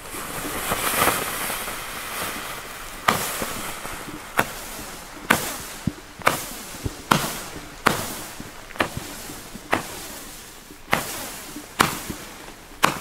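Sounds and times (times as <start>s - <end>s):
firework cracks: 0.0s - 13.0s
firework hissing rush: 0.0s - 13.0s.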